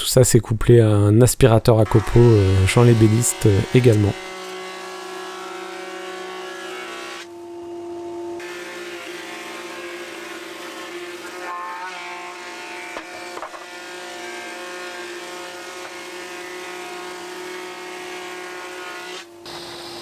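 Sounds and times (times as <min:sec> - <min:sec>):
planer motor whine: 0:19.4 - 0:20.0.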